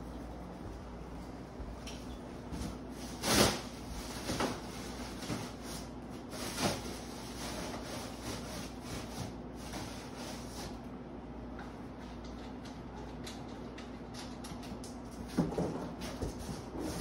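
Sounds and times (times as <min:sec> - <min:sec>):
plastic wrapping rustling: 0:02.5 - 0:10.7.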